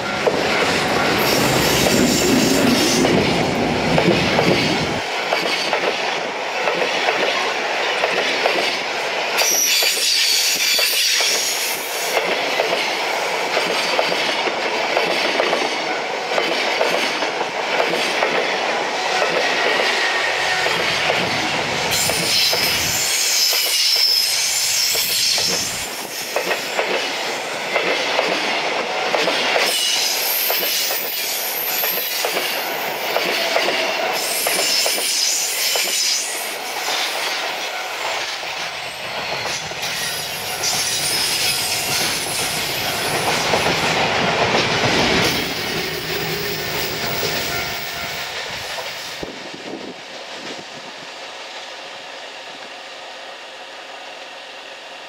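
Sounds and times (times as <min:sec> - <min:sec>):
train wheels clacking on rail joints: 0:00.0 - 0:50.7.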